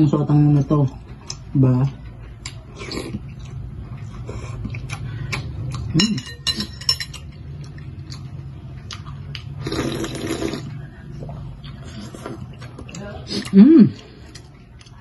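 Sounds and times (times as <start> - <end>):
cutlery clinking on ceramic bowl: 5.9 - 7.4
person slurping broth: 9.6 - 10.7.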